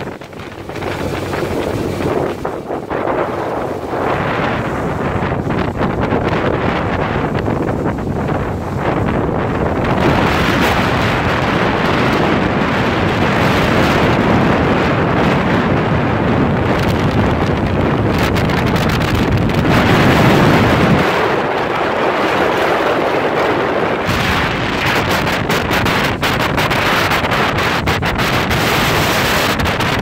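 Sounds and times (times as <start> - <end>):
motorboat running noise: 0.0 - 30.0
water rushing: 0.0 - 30.0
wind buffeting microphone: 0.0 - 30.0.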